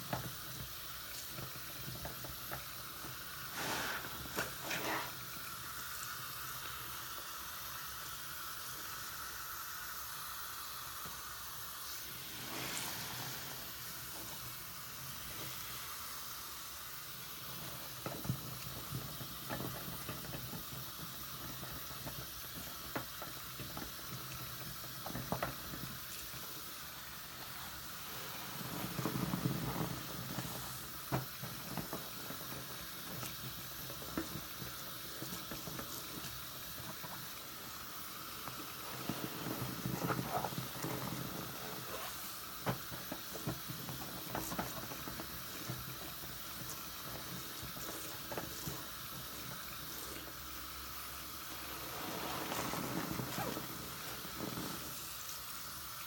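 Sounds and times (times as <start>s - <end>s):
fizzing foam: 0.0s - 56.0s
running tap water: 0.0s - 56.0s
wet sponge squelches: 1.1s - 5.6s, 11.8s - 16.3s, 25.2s - 55.8s.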